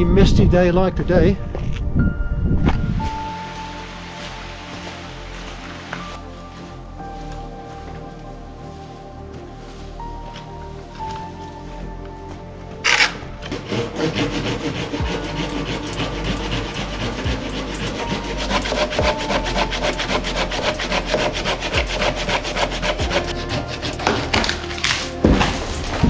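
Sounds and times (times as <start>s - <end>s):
hand saw cutting wood: 12.8s - 26.0s.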